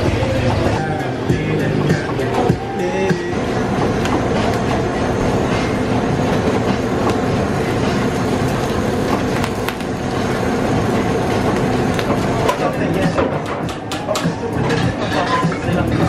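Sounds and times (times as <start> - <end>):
kitchen burners roaring: 0.0 - 16.0
butane torch hissing: 1.2 - 13.1.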